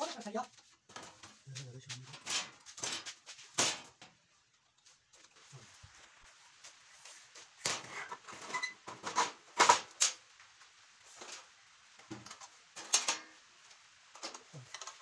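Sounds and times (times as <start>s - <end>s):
metal scraping and knocking: 0.9s - 4.2s.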